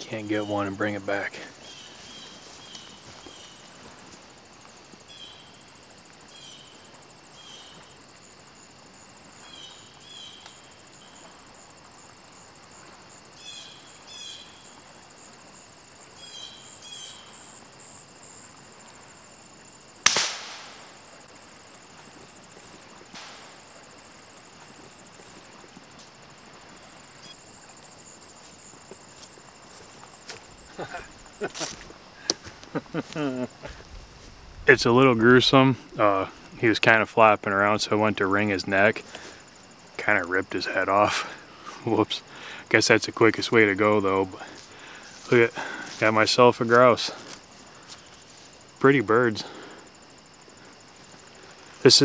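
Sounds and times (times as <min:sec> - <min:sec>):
rifle shot: 0:20.0 - 0:21.0, 0:23.2 - 0:23.6.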